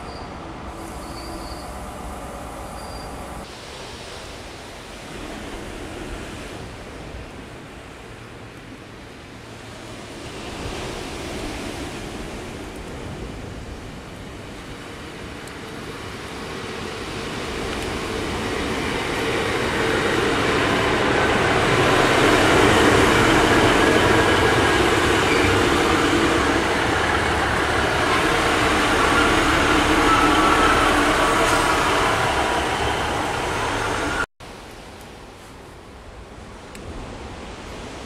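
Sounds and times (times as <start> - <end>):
diesel train engine: 0.0 - 3.5, 14.8 - 34.3
train wheels on rails: 9.7 - 34.9.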